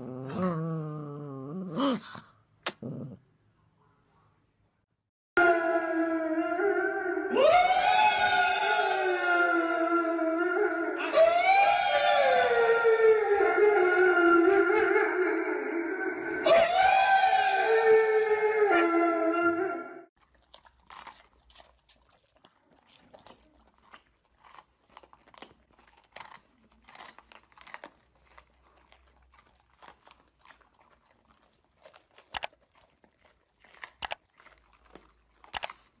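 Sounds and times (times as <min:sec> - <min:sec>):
dog howling: 0:00.0 - 0:02.0, 0:05.4 - 0:20.0
dogs crunching peppers: 0:20.2 - 0:36.0.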